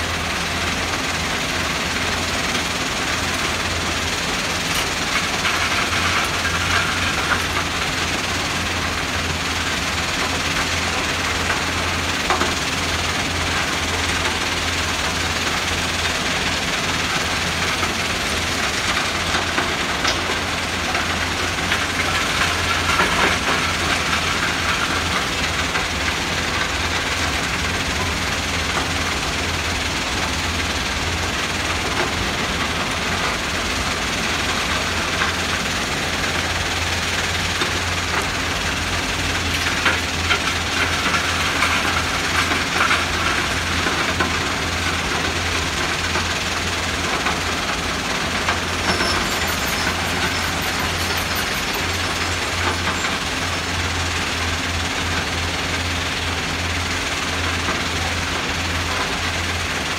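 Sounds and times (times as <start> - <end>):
excavator diesel engines: 0.0 - 59.9
stone crushing plant: 0.0 - 59.9
rocks rattling and clattering: 4.6 - 8.2, 39.4 - 46.4, 47.0 - 54.0.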